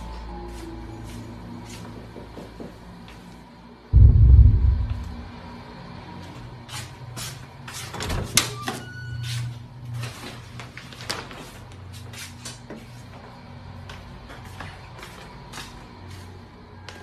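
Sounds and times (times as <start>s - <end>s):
sharp knock: 4.0s - 5.4s
low steady hum: 4.0s - 5.5s.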